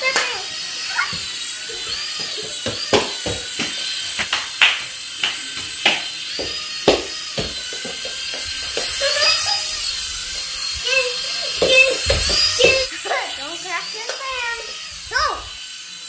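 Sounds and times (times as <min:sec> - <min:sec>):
small propeller motor whirring: 0:00.0 - 0:16.0
sharp clicks and taps: 0:01.0 - 0:09.0.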